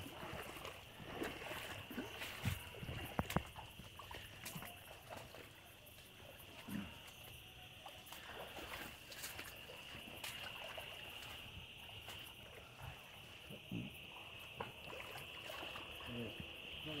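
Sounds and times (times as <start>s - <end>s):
night insects chirring: 0.0s - 17.0s
footsteps through tall grass: 8.2s - 12.4s.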